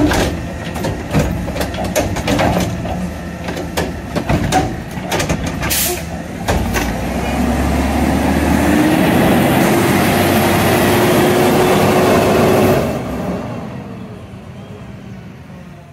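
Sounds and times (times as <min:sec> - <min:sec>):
garbage truck arm knocks: 0:00.0 - 0:05.7
garbage truck engine accelerating: 0:00.0 - 0:15.7
engine whine: 0:00.0 - 0:15.9.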